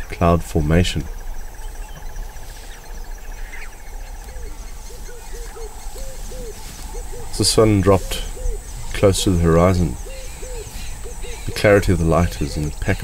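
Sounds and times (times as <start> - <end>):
high insect hiss: 0.0 - 13.0
insects trilling: 0.0 - 13.0
low hooting notes: 3.7 - 13.0.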